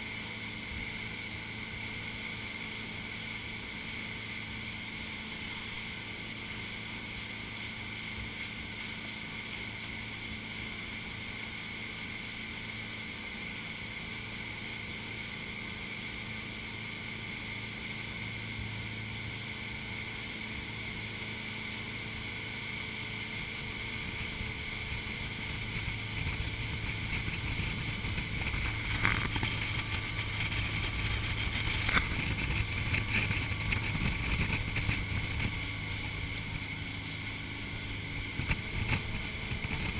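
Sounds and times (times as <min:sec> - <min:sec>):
motorboat engine running: 0:00.0 - 0:39.9
water rushing in wake: 0:00.0 - 0:39.9
wind on microphone: 0:23.8 - 0:39.9.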